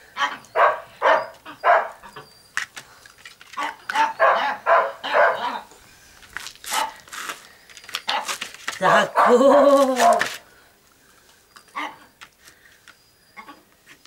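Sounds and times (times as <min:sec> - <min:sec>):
puppy yapping: 0:00.2 - 0:02.3, 0:03.6 - 0:05.7, 0:08.8 - 0:10.3.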